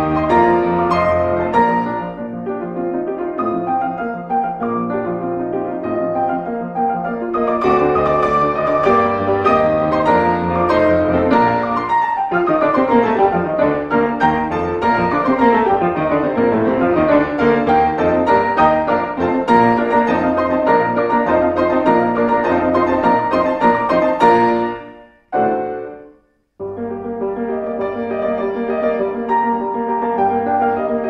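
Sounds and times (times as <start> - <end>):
solo classical piano: 0.0 - 31.0.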